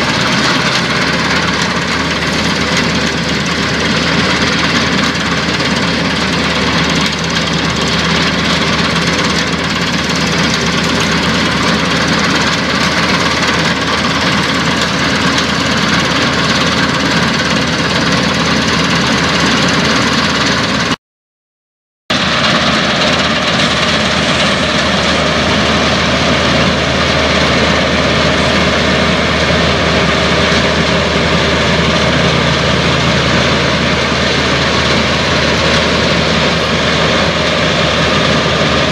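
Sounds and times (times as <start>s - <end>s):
combine harvester droning: 0.0s - 21.0s, 22.1s - 38.9s.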